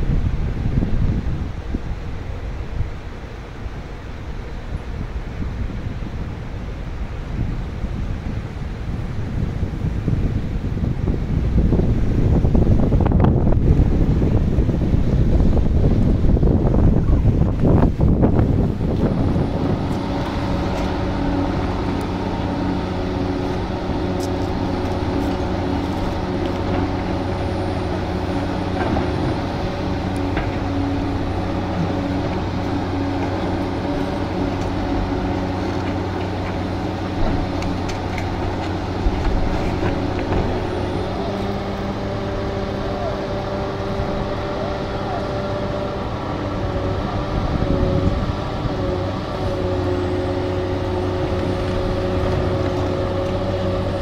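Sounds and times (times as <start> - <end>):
heavy machinery engine running: 0.0 - 54.0.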